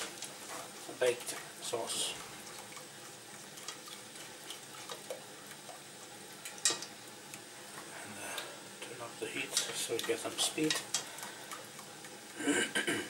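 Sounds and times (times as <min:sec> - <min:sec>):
whisk stirring sauce in saucepan: 0:00.4 - 0:06.8.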